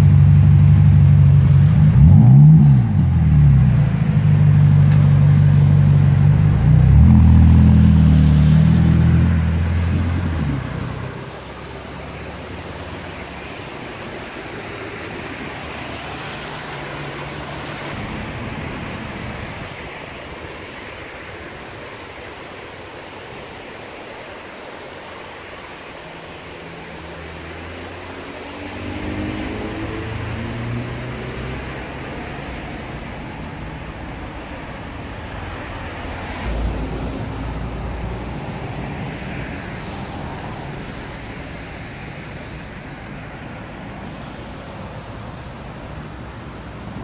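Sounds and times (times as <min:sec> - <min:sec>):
car engine accelerating: 0:00.0 - 0:12.3, 0:27.4 - 0:32.8
road and traffic noise: 0:00.0 - 0:47.0.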